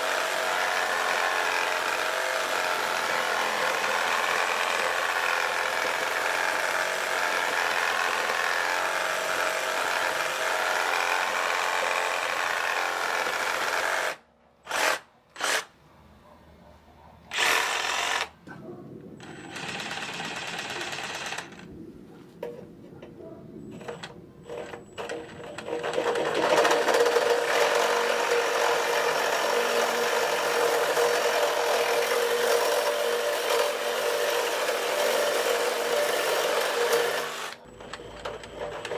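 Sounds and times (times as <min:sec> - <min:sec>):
reciprocating saw cutting: 0:00.0 - 0:15.7, 0:17.3 - 0:18.4, 0:25.6 - 0:37.7.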